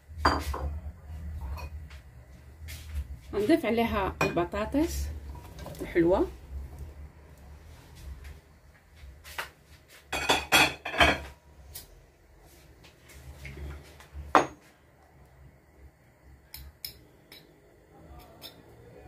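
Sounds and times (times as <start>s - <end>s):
dishes and utensils clinking: 10.1s - 11.4s.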